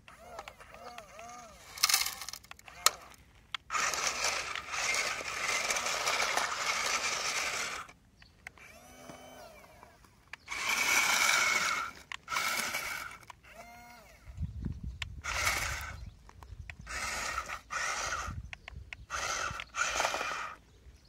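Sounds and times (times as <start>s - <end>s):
toy gear motors whirring: 0.0s - 20.6s.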